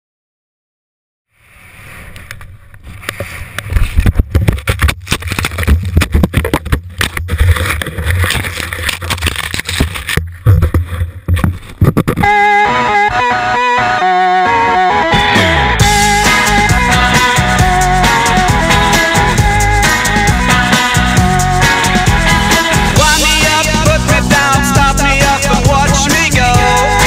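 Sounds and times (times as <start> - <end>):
guitar music: 12.2 - 27.0.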